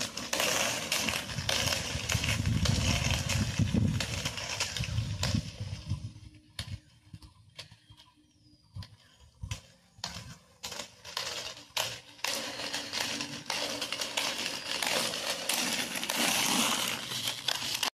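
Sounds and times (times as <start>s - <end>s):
roller skate wheels on asphalt: 0.0s - 18.0s.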